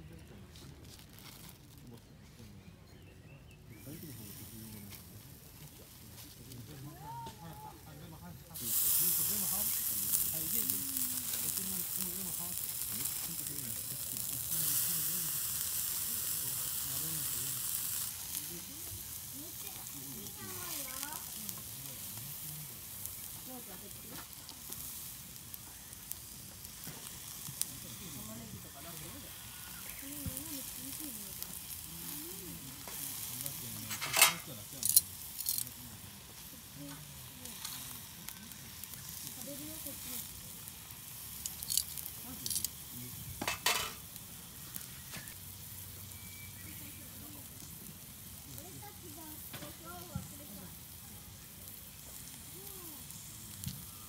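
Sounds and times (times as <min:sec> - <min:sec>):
meat skewers sizzling over charcoal: 0:00.0 - 0:54.0
fat popping and crackling: 0:04.8 - 0:45.8.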